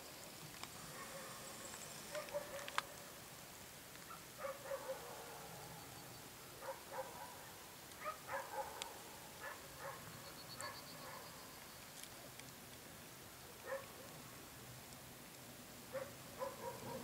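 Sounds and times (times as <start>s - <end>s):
faint dog barking: 0.8s - 3.0s, 4.0s - 5.8s, 6.6s - 11.4s, 13.6s - 14.2s, 15.9s - 17.0s.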